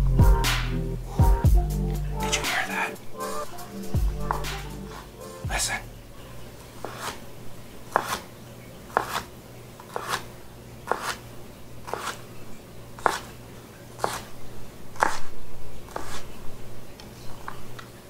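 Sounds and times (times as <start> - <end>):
knife chopping on cutting board: 6.8 - 7.2, 7.9 - 8.2, 9.0 - 9.3, 9.9 - 10.2, 10.9 - 11.2, 11.9 - 12.2, 13.0 - 13.3, 14.0 - 14.3, 15.0 - 15.3, 15.9 - 16.2.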